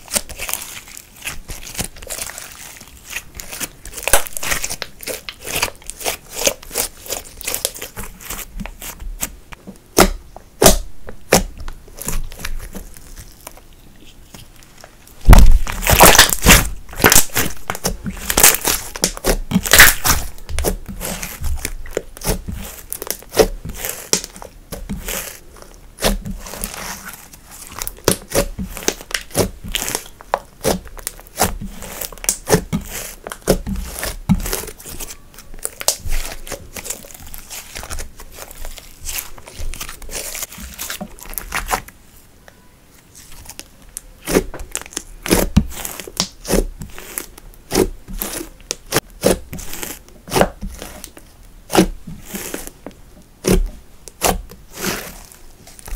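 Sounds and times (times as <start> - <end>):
slime sticky tearing: 0.0 - 9.4, 15.2 - 41.9, 43.2 - 52.8, 53.4 - 55.9
slime clicking and popping: 15.2 - 25.4, 27.8 - 34.8, 35.6 - 38.5, 43.9 - 52.6.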